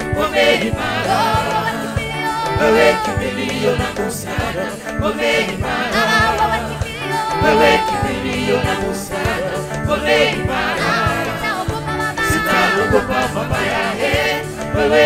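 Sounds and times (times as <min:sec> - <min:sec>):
bass: 0:00.0 - 0:15.0
mixed choir singing: 0:00.0 - 0:15.0
steady drum beat: 0:00.0 - 0:15.0.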